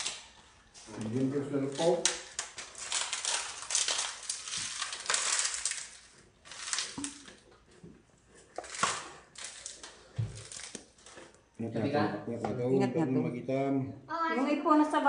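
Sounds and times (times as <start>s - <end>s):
wet batter scraping and squishing: 0.0s - 11.5s.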